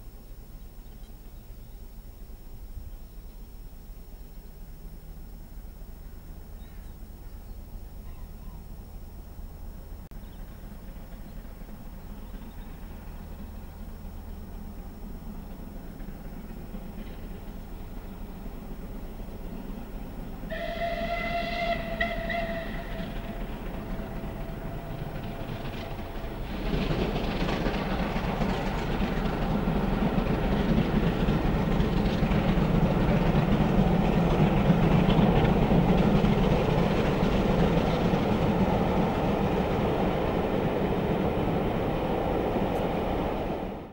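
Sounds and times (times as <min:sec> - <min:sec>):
train rumble and wheel clatter: 0:00.0 - 0:43.9
steam whistle: 0:20.5 - 0:26.0.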